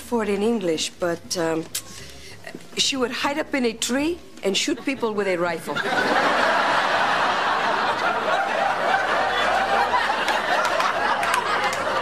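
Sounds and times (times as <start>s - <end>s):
audience laughing: 4.7s - 12.0s.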